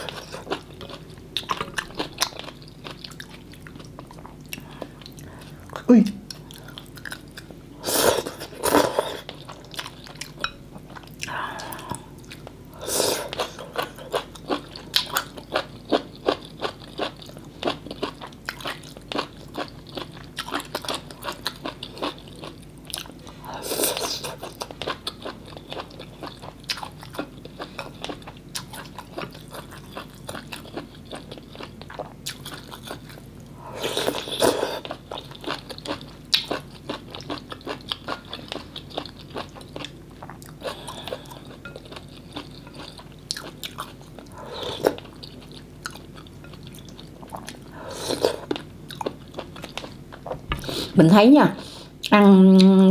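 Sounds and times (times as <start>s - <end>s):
chewing with wet mouth clicks: 0.1s - 5.3s, 34.8s - 47.6s.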